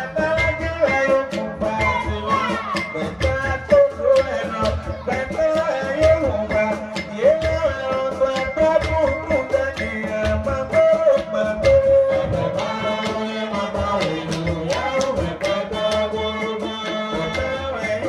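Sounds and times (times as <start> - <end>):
percussion beat: 0.0 - 18.0
person singing through loudspeakers: 0.0 - 18.0.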